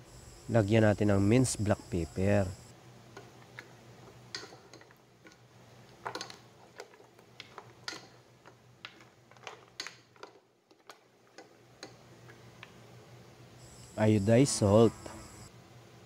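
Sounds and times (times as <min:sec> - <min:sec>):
low steady hum: 0:11.3 - 0:16.0.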